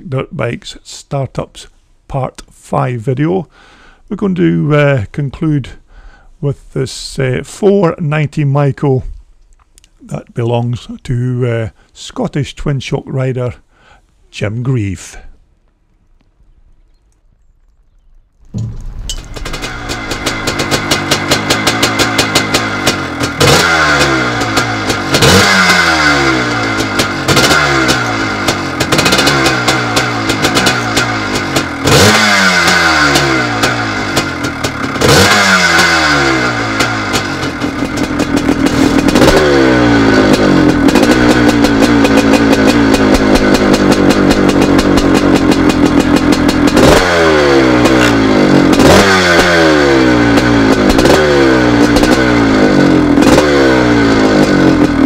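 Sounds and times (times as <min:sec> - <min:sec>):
motocross engine revving: 0:18.6 - 0:55.0.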